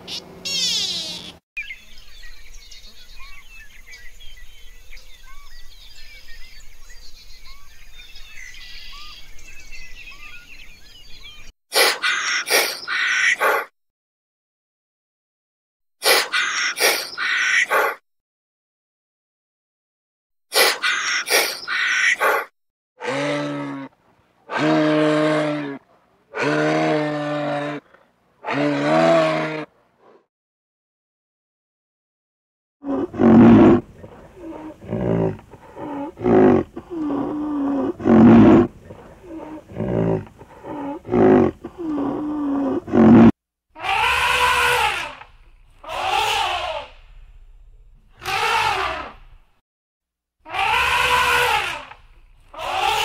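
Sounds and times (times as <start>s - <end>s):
animal calls: 0.0s - 1.4s, 11.8s - 13.7s, 16.0s - 18.0s, 20.6s - 30.2s, 32.8s - 47.0s, 48.1s - 49.4s, 50.4s - 53.0s.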